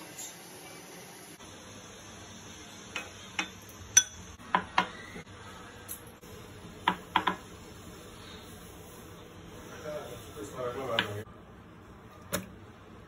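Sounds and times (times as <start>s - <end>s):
glass bowls clinking on stone: 3.0s - 4.4s.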